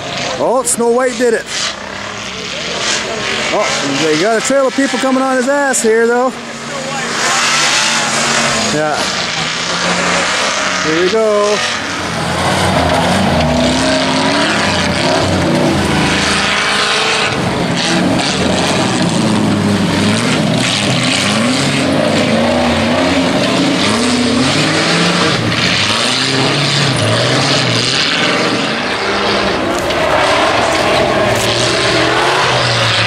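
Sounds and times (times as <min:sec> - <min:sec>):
off-road engines revving hard: 0:00.0 - 0:33.0.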